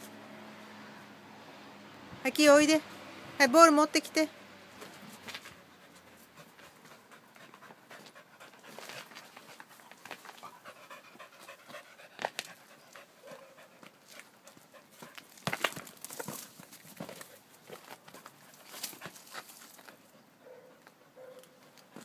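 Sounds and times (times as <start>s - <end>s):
dog panting rapidly: 5.5s - 15.2s.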